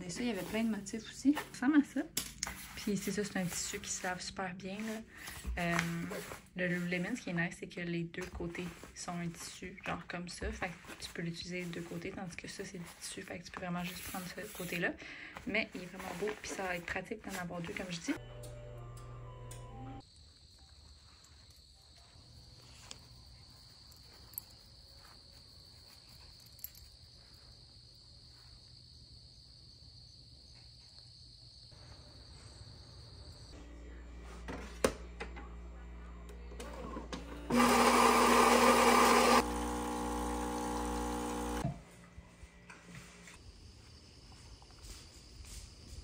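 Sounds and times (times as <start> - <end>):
espresso machine humming: 36.3 - 41.8
espresso machine grinding: 36.6 - 41.7.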